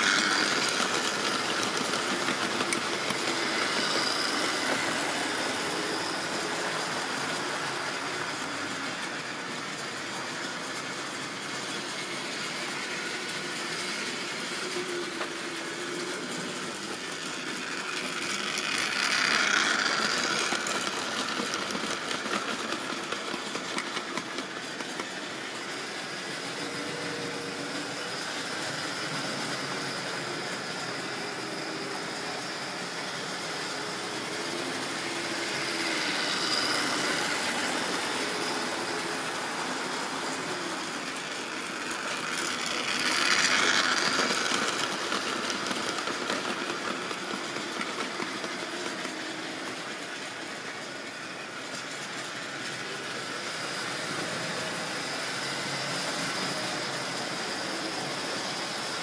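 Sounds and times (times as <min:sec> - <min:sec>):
model train motor hum: 0:00.0 - 0:59.0
wheels rattling on rails: 0:00.0 - 0:59.0.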